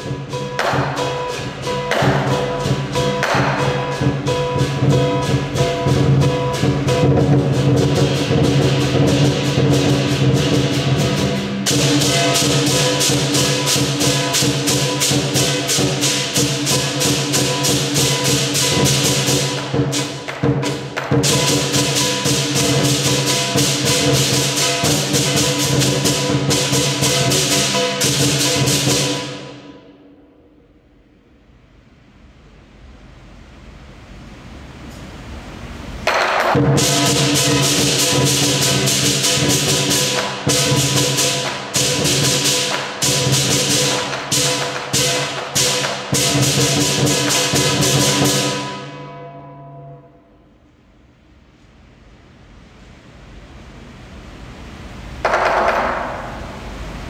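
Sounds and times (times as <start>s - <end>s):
large drum beaten rapidly: 0.0s - 29.7s, 36.0s - 49.0s
clashing cymbals: 0.0s - 31.3s, 36.0s - 50.7s.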